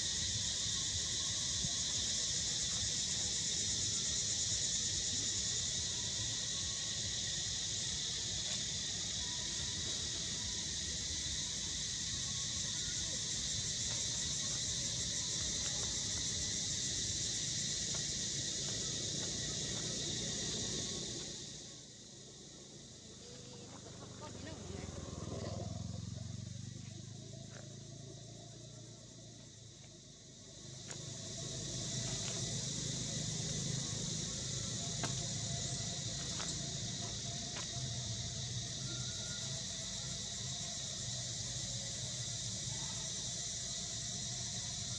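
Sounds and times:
high insect chorus droning: 0.0s - 44.9s.

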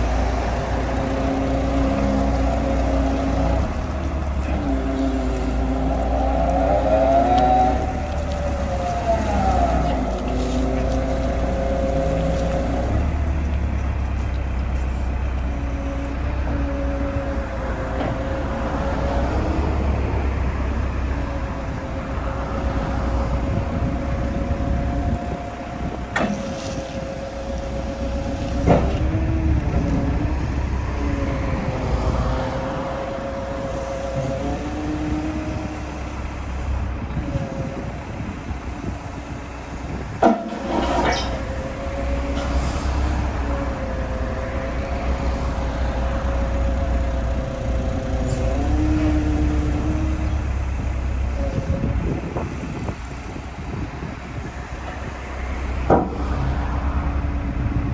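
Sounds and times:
diesel engine running under load: 0.0s - 57.9s
hydraulic whine: 21.9s - 57.8s.

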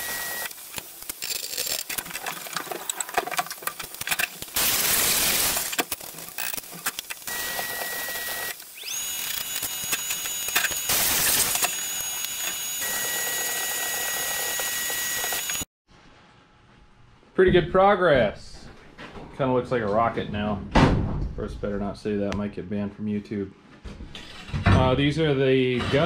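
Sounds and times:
welding crackling hiss: 0.0s - 15.7s
clicks and handling noise: 0.4s - 4.7s, 5.4s - 12.9s
high whine rising in pitch: 7.3s - 15.7s.

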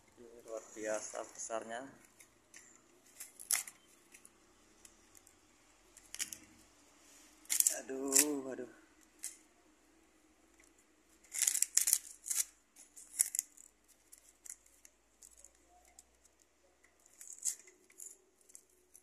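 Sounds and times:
dry paper rustling and crackling: 10.6s - 19.0s.

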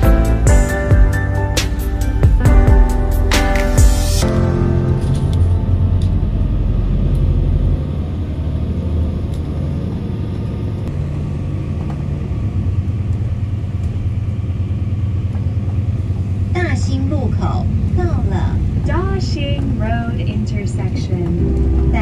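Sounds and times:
bus engine rumble: 0.0s - 22.0s
tyres on wet road: 5.1s - 22.0s.

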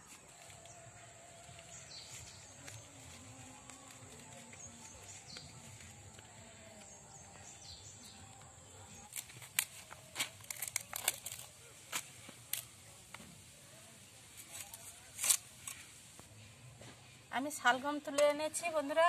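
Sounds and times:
blade snapping through stalks: 9.0s - 12.7s, 14.5s - 15.8s.

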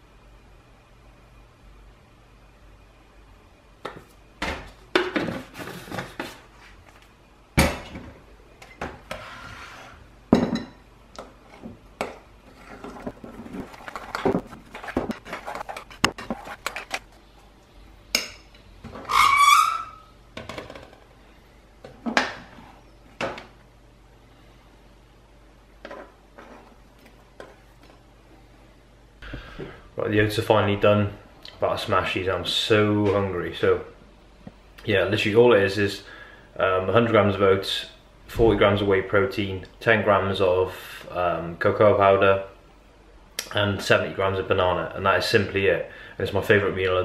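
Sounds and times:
squeaky spoon scrape: 19.0s - 20.1s.

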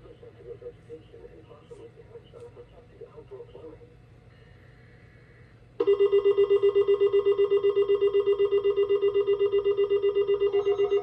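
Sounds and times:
rapidly pulsing electronic beep: 5.8s - 11.0s.

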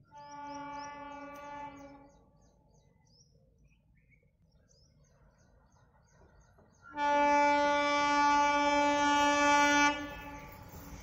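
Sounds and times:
locomotive horn blast: 6.9s - 10.5s.

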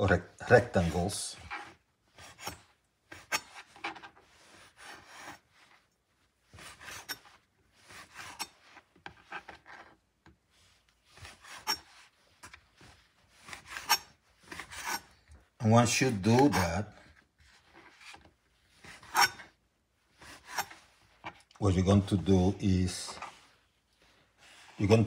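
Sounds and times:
knife sawing through bread: 0.6s - 5.5s, 6.5s - 8.6s, 11.1s - 12.2s, 13.3s - 15.2s, 18.7s - 19.5s, 20.1s - 21.0s.

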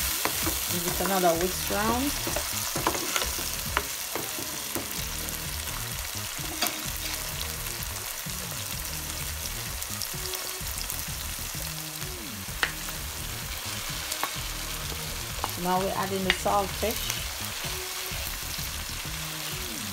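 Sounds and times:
vegetables sizzling in a frying pan: 0.0s - 19.9s
wooden spoon scraping a pan: 0.1s - 5.0s, 6.4s - 7.3s.

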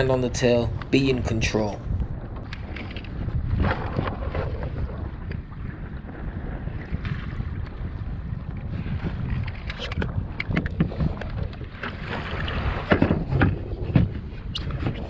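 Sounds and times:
wind buffeting microphone: 0.0s - 15.0s
knocks and taps on kayak: 9.5s - 11.9s, 12.8s - 15.0s.

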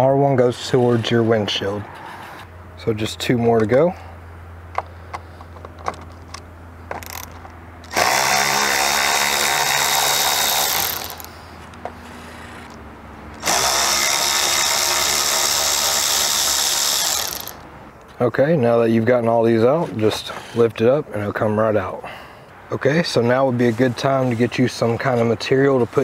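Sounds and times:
power driver motor whine: 5.8s - 17.8s.

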